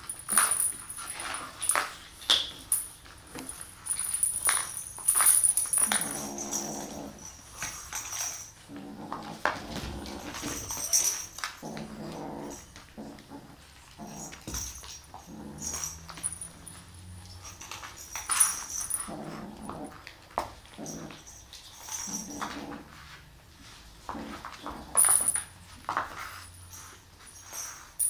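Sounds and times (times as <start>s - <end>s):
kitten growling: 5.8s - 7.3s, 8.7s - 14.5s, 18.9s - 20.1s.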